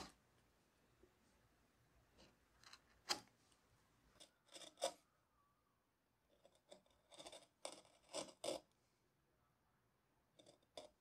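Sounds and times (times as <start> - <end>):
carving gouge cutting wood: 6.8 - 8.6.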